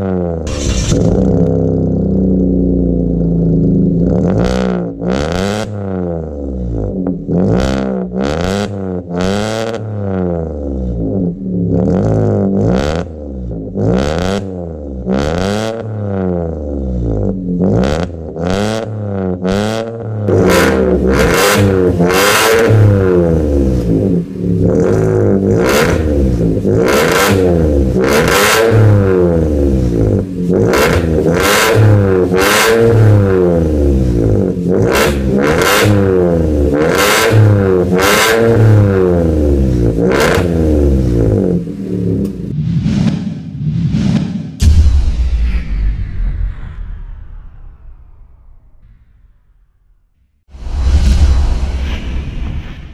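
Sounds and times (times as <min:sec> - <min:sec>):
car engine revving: 0:00.0 - 0:43.3.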